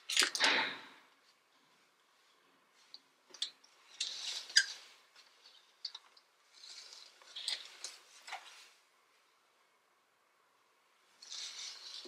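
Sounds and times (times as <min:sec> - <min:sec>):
fabric rustling: 0:06.4 - 0:09.4.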